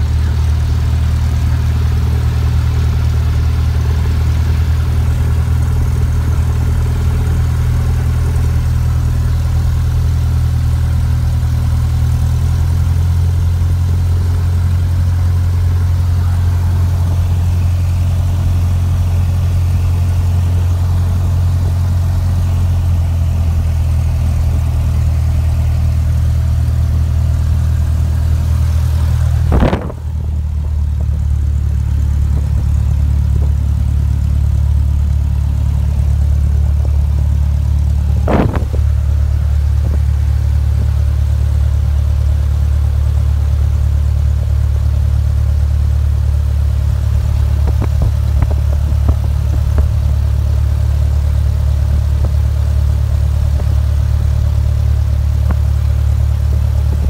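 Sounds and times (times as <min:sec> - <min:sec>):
propeller plane engine drone: 0:00.0 - 0:57.0
brief thump: 0:29.5 - 0:30.2, 0:38.2 - 0:38.9.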